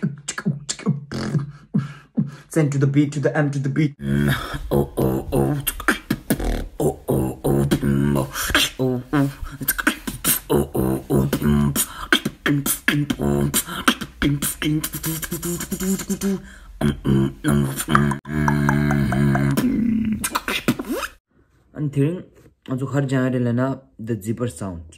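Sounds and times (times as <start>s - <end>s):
person beatboxing: 0.0s - 2.6s, 4.0s - 21.2s.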